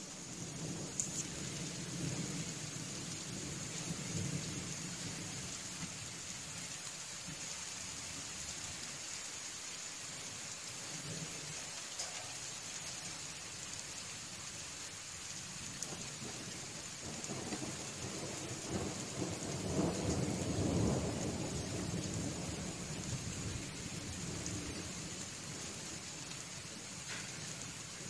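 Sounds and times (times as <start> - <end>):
steady rain: 0.0 - 28.0
thunder rumbling: 0.2 - 6.0, 15.8 - 27.8.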